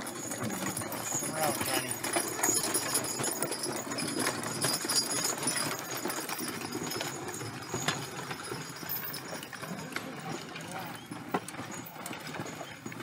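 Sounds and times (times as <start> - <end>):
hooves clopping on packed snow: 0.0 - 13.0.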